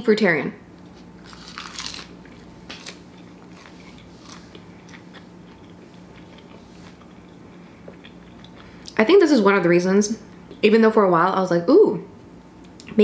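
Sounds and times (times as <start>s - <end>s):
crisp crunching bites: 1.2s - 7.3s.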